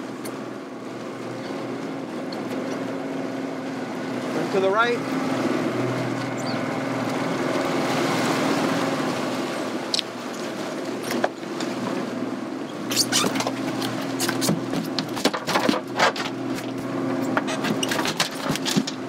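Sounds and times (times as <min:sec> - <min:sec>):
outboard motors humming: 0:00.0 - 0:19.0
fish thrashing on deck: 0:12.8 - 0:19.0.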